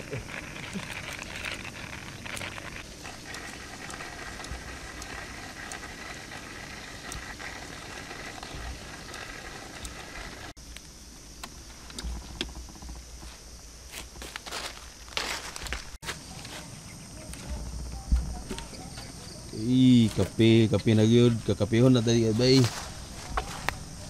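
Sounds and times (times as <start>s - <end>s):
kettle hissing and singing: 0.0s - 12.0s
campfire logs crackling: 0.0s - 24.0s.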